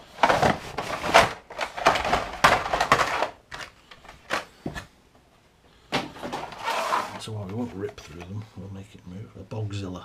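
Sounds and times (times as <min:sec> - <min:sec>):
toy cars clattering onto table: 0:00.2 - 0:04.5.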